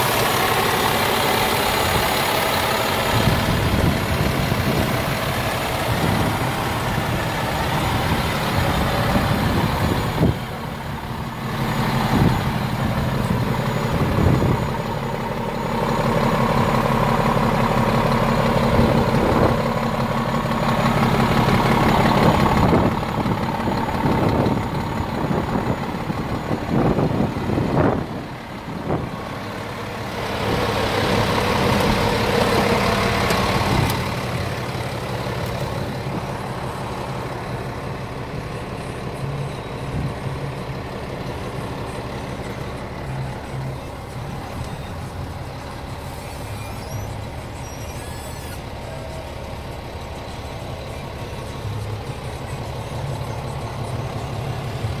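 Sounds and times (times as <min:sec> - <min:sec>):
diesel truck engine idling: 0:00.0 - 0:55.0.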